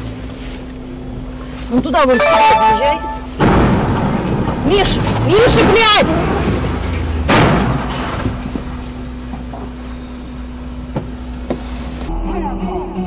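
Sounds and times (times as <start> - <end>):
car engine and road rumble: 0.0 - 12.2
loud crash: 3.2 - 9.0.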